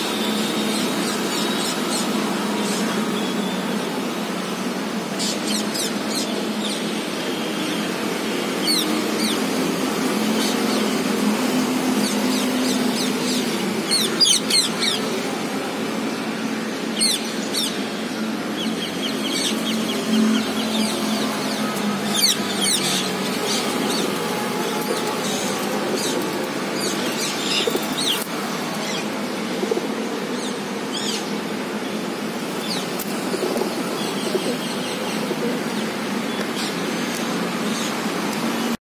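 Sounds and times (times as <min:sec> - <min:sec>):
parakeets calling: 0:07.6 - 0:15.2, 0:16.8 - 0:38.0.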